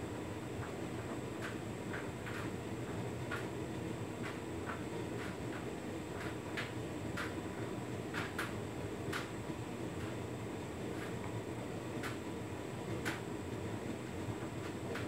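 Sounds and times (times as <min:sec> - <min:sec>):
dryer motor and fan hum: 0:00.0 - 0:15.0.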